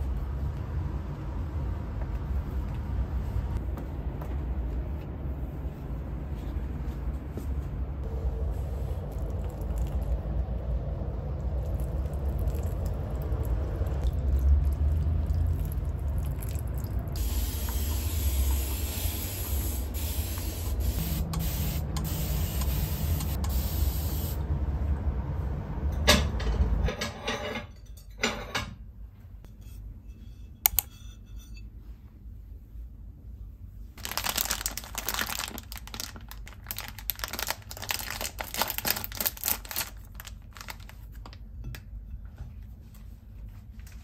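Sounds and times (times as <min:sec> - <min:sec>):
low rumble: 0:00.0 - 0:17.2, 0:20.6 - 0:27.0
water spray hissing: 0:17.2 - 0:24.4.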